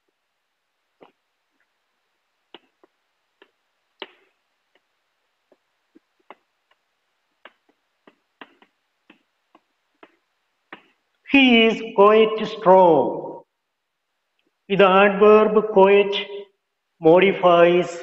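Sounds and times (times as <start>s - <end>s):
chalk tapping on chalkboard: 5.5s - 11.0s.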